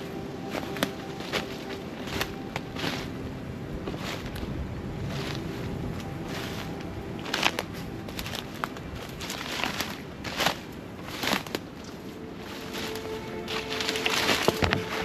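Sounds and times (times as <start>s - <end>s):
footsteps crunching through undergrowth: 0.0s - 15.0s.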